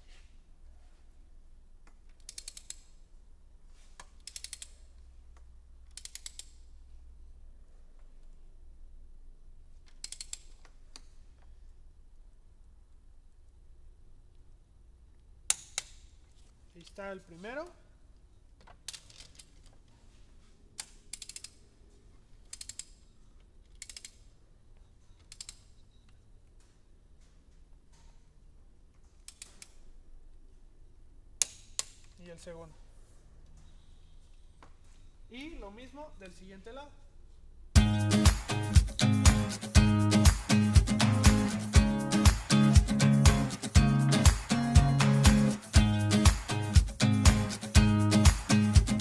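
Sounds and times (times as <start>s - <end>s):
torque wrench ratchet clicking: 2.2s - 2.9s, 4.2s - 4.9s, 5.9s - 6.6s, 9.9s - 10.7s, 21.1s - 21.6s, 22.5s - 23.0s, 23.7s - 24.2s.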